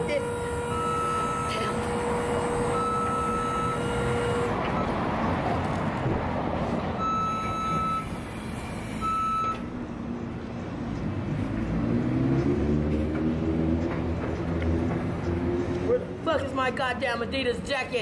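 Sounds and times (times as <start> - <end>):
reversing beeper beeps: 0.0 - 5.0, 7.0 - 9.6
street traffic noise: 0.0 - 18.0
vehicle engine rumble: 0.0 - 18.0.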